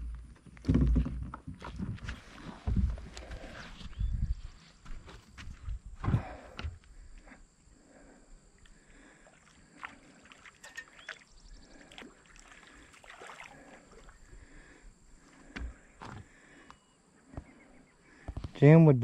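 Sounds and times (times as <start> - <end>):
fish splashing at water surface: 9.2 - 14.2.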